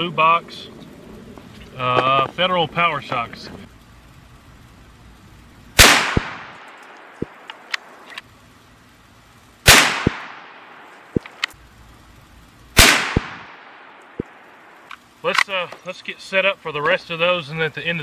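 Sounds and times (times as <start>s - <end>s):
rifle shots: 5.8s - 8.2s, 9.6s - 11.5s, 12.8s - 14.8s.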